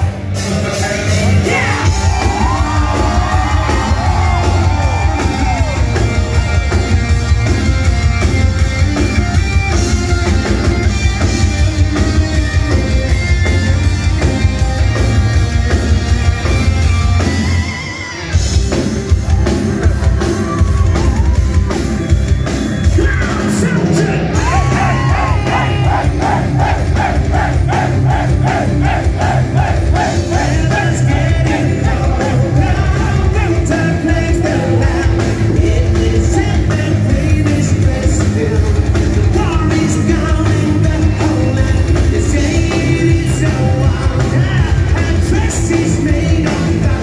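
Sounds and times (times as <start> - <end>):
live metal band playing: 0.0 - 47.0
fast drumming: 1.4 - 16.7, 18.4 - 47.0
voices singing: 23.9 - 38.8.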